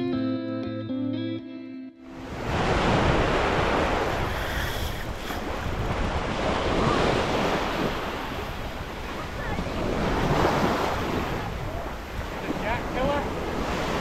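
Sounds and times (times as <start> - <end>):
guitar music: 0.0 - 2.4
small waves washing onto beach: 2.2 - 14.0
wind rumbling on microphone: 2.2 - 14.0.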